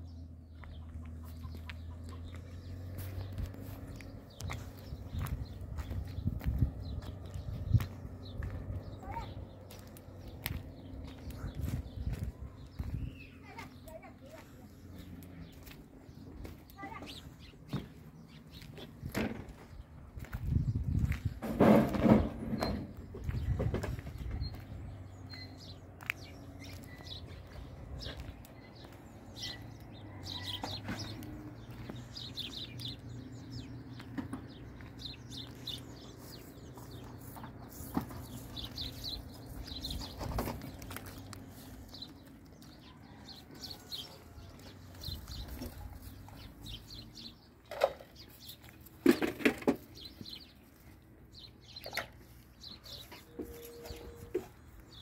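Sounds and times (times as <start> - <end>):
small birds chirping: 0.0 - 21.4, 22.2 - 55.0
sharp knocks and clatters: 21.4 - 23.0, 49.0 - 50.0.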